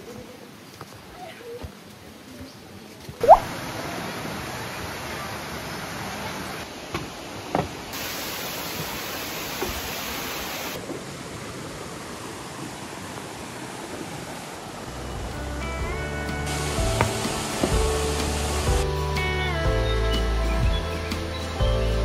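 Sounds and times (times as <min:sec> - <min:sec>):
water flowing over small waterfalls: 0:01.8 - 0:18.9.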